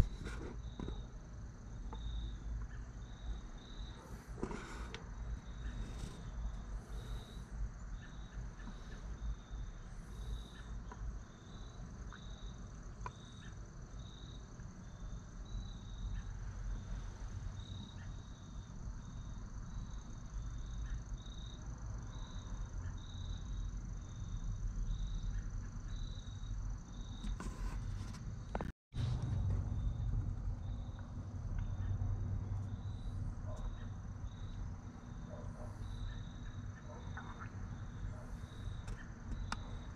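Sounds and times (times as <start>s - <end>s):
insect chirping: 0.0s - 27.7s, 29.8s - 39.9s
low rumble: 29.0s - 33.4s.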